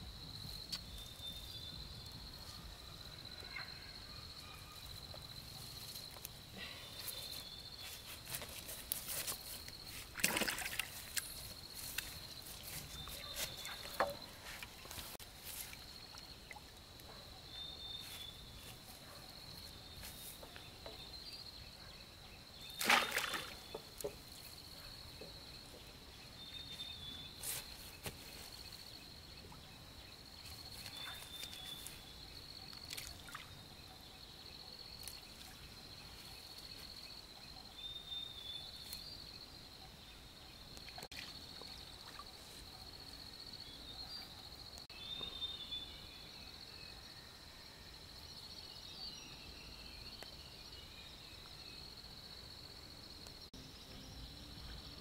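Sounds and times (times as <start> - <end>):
water sloshing and splashing: 10.0 - 16.8, 22.8 - 24.2.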